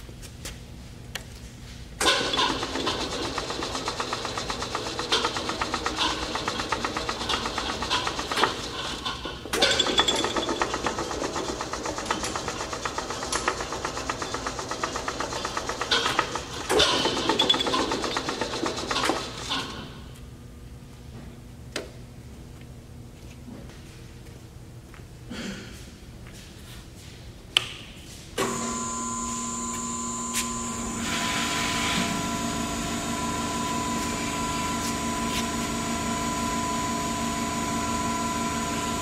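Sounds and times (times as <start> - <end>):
fast-pulsing machine rattle: 2.0 - 19.9.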